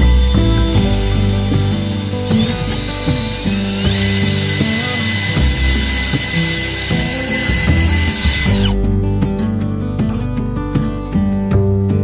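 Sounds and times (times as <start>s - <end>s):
cordless drill whining: 0.0s - 8.8s
background music: 0.0s - 12.0s.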